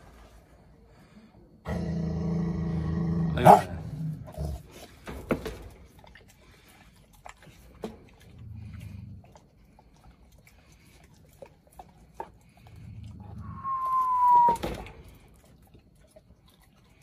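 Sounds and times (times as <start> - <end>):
dog growling: 1.6 - 5.0, 8.2 - 10.0
dog snarling: 1.7 - 4.8.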